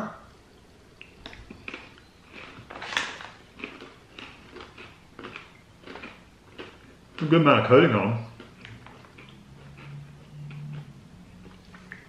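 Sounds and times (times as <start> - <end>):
pretzels crunching: 1.6 - 10.8.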